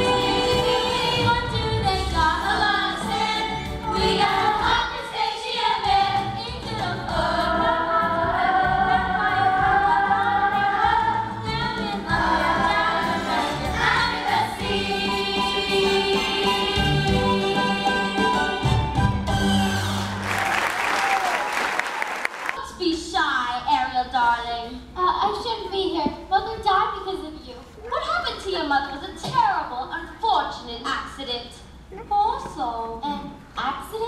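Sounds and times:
chorus singing: 0:00.0 - 0:20.2
musical accompaniment: 0:00.0 - 0:20.6.

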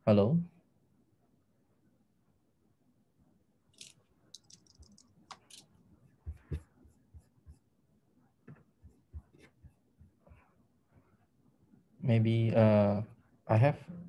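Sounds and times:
faint clicks taps and rustles: 0:03.8 - 0:07.7.

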